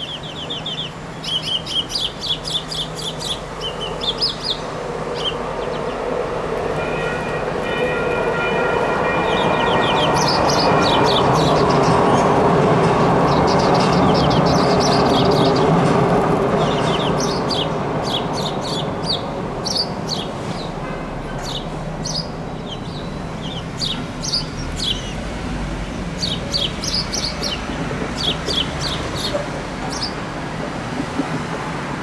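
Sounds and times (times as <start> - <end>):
small birds chirping: 0.0 - 6.1, 16.5 - 20.8, 21.4 - 25.2, 25.8 - 30.2
light rail train rolling past: 0.0 - 32.0.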